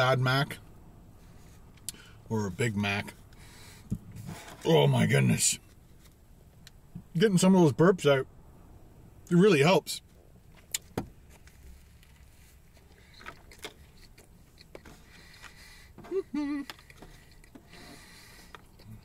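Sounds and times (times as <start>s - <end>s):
man chewing: 12.8s - 19.0s.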